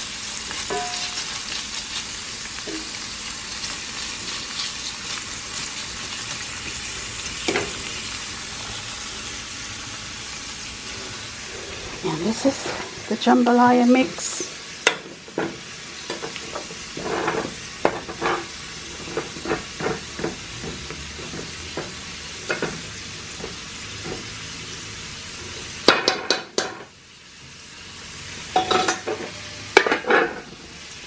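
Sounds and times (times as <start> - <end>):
sizzling in a pot: 0.0 - 31.0
pot lid clanking: 0.7 - 1.2, 28.6 - 30.5
metal spoon scraping a pot: 17.0 - 20.3.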